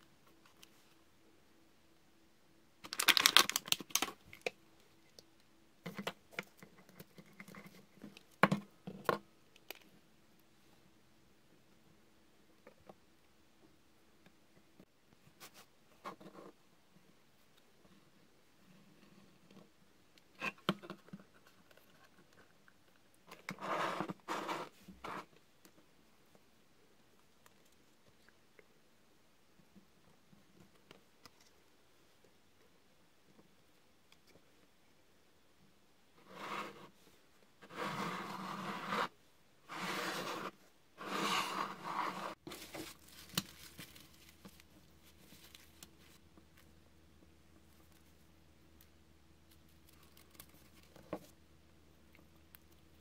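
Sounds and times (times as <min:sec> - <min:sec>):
wood scraping on cutting mat: 0:37.6 - 0:39.1, 0:39.7 - 0:42.4.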